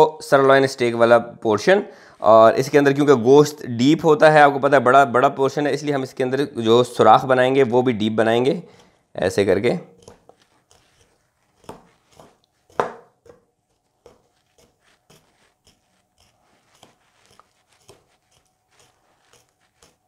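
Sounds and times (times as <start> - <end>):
knife stabbing into meat: 10.0 - 20.0.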